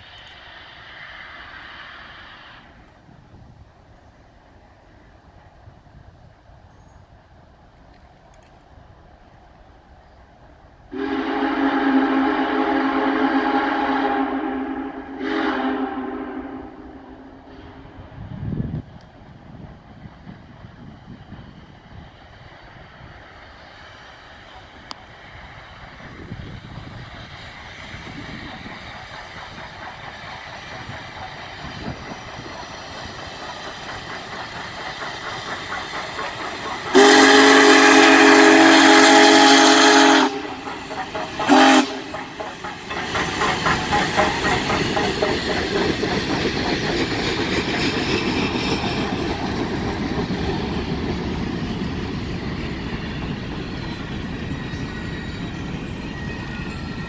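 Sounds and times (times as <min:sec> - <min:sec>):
steam locomotive: 0:00.0 - 0:57.0
steam whistle: 0:10.9 - 0:18.0, 0:36.9 - 0:40.7, 0:41.4 - 0:42.3
train wheels clickety-clack: 0:17.4 - 0:57.0.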